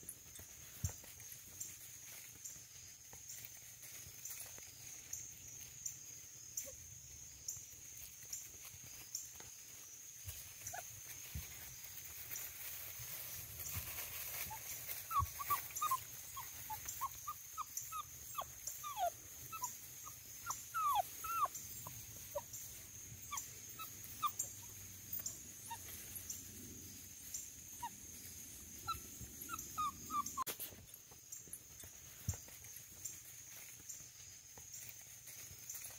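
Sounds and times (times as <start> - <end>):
puppy whimpering: 14.5 - 22.5, 23.2 - 25.9, 28.8 - 30.5.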